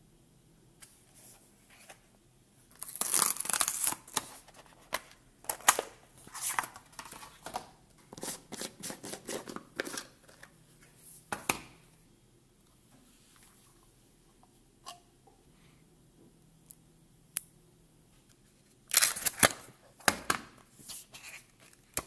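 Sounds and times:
rustling of card and paper: 2.8s - 11.1s, 20.8s - 22.0s.

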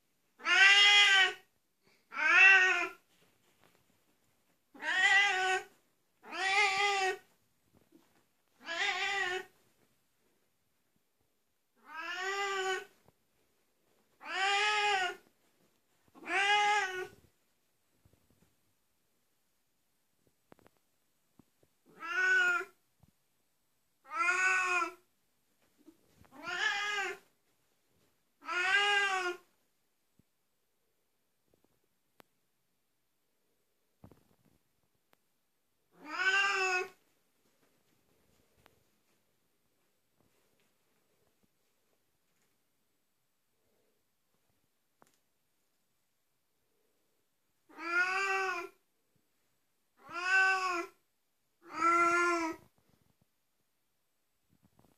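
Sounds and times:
cat meowing loudly: 0.4s - 1.5s, 2.1s - 3.0s, 4.7s - 7.3s, 8.6s - 9.6s, 11.8s - 12.9s, 14.2s - 15.3s, 16.2s - 17.2s, 21.9s - 22.8s, 24.0s - 25.0s, 26.3s - 27.2s, 28.4s - 29.5s, 35.9s - 37.0s, 47.7s - 48.8s, 50.0s - 51.0s, 51.6s - 52.6s.

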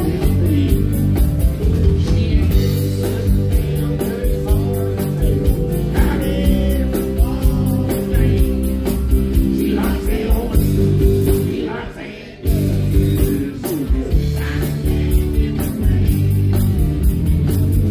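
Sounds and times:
man singing country song: 0.0s - 1.0s, 2.0s - 10.8s, 12.4s - 16.6s.

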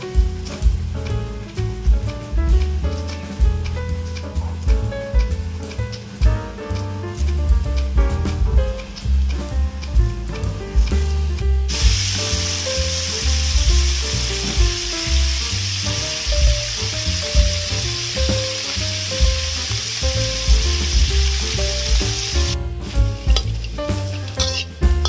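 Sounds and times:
background music: 0.0s - 25.0s
chicken wings sizzling in oil: 8.7s - 25.0s.

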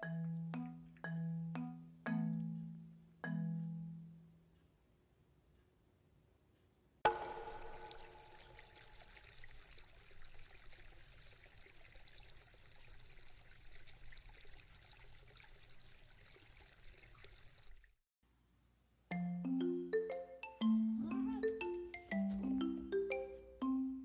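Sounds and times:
trickle of running water: 7.1s - 18.0s.

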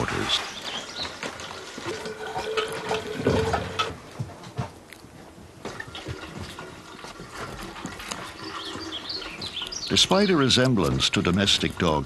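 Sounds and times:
water running into a pitcher: 5.8s - 12.0s.

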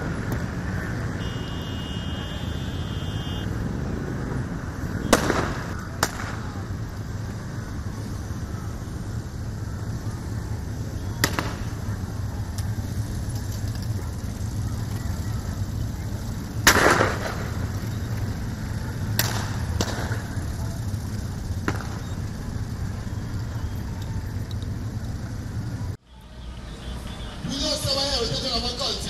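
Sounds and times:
motorcycles rumbling: 0.0s - 29.0s
sharp bangs: 5.0s - 6.6s, 16.6s - 17.7s.

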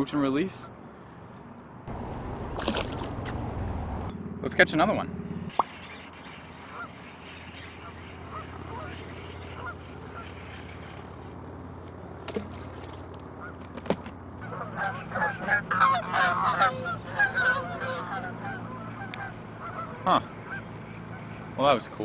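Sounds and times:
steady low hum: 0.8s - 22.0s
geese honking: 5.5s - 11.2s, 14.4s - 21.6s.

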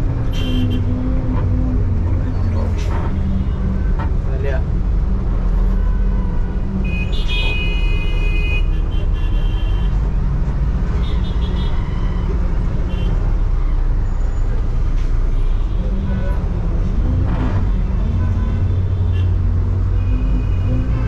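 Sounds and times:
bus engine and road noise: 0.0s - 21.0s
vehicle horns honking: 0.3s - 0.9s, 6.8s - 10.0s.

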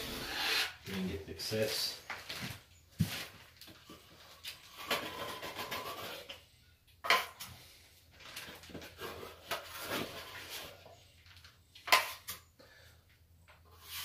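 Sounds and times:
trowel scraping plaster in bucket: 0.0s - 1.0s, 4.6s - 6.4s.

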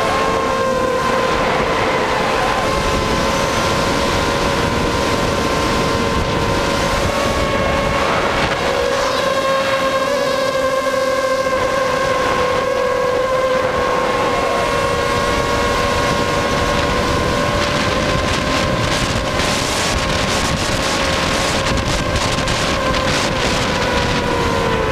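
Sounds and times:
quadcopter motors whining: 0.0s - 24.9s
wind rushing over microphone: 0.0s - 24.9s.

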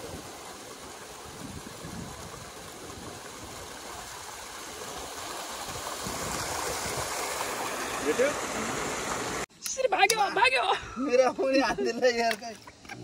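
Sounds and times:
river water flowing: 0.0s - 10.7s.

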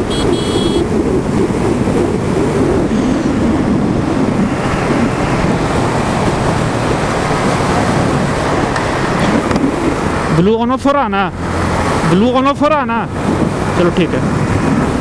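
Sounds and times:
wind rush on microphone: 0.0s - 15.0s.

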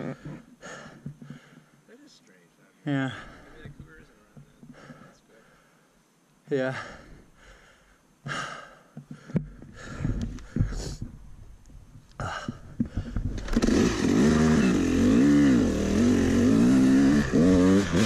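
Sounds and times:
dirt bike engine revving: 13.1s - 18.0s.

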